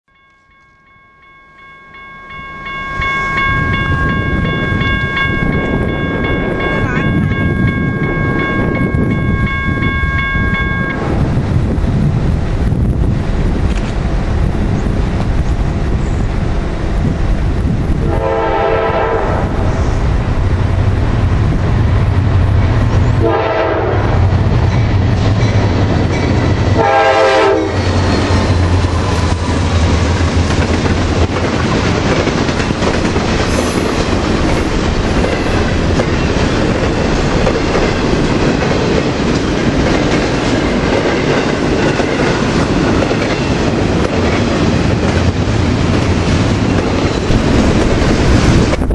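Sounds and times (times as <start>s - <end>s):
locomotive horn blasts: 18.0s - 19.7s, 23.2s - 24.3s, 26.8s - 27.9s.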